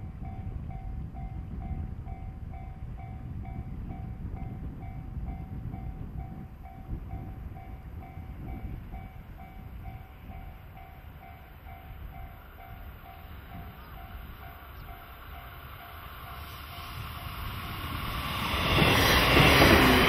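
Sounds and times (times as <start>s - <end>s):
level crossing warning bell ringing: 5.0s - 17.7s.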